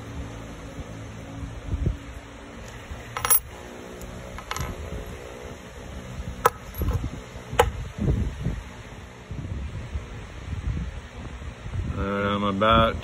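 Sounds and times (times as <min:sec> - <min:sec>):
metal clinks with ringing: 0:03.1 - 0:03.6, 0:04.4 - 0:04.8.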